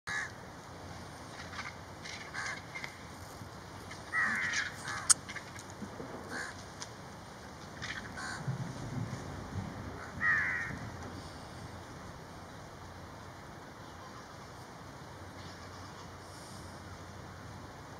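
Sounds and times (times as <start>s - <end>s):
vultures calling harshly: 1.5s - 3.0s, 4.0s - 5.6s.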